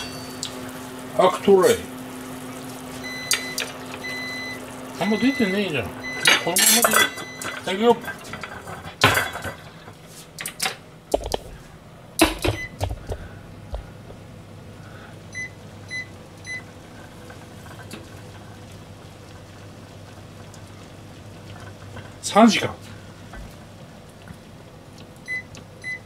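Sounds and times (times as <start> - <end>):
cooktop control panel beeps: 0.0 - 1.2, 2.9 - 8.2, 12.2 - 13.0, 15.3 - 16.7, 25.2 - 26.0
pots and pans clattering: 6.2 - 11.4, 12.2 - 13.2.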